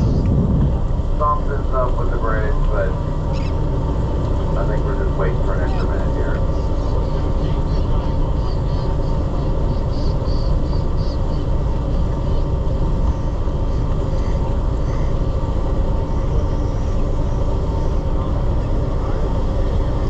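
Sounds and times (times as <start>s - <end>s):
wind buffeting microphone: 0.0s - 1.7s
boat engine rumbling: 0.0s - 20.0s.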